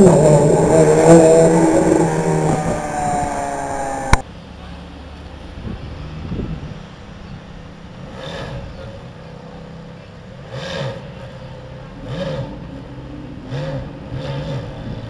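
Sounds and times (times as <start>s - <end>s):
sports car engine revving: 0.0s - 4.2s, 10.0s - 15.0s.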